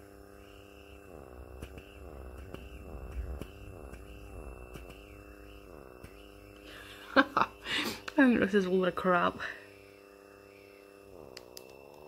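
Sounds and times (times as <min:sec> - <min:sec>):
pore vacuum motor whine: 0:00.0 - 0:12.0
small clicks: 0:11.3 - 0:12.0.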